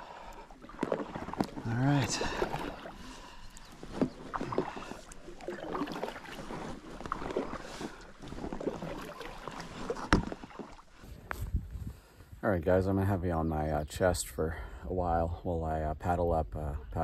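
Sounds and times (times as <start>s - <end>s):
water splashing: 0.0s - 11.1s
kayak knocks and clicks: 0.6s - 1.8s, 3.5s - 11.4s.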